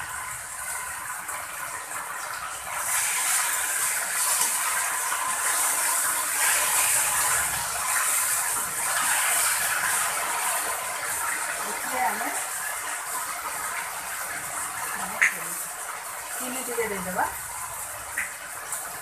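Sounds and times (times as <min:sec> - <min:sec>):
vegetables sizzling in a wok: 0:02.4 - 0:17.5.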